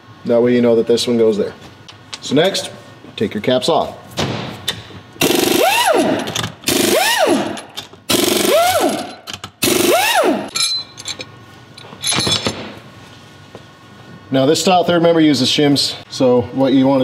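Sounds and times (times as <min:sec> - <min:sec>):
pneumatic wrench bursts: 0:05.2 - 0:10.5.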